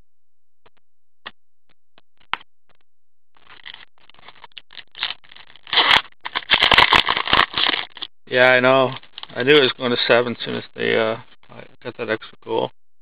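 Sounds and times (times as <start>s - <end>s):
pack rustling and scraping open: 3.5s - 8.1s.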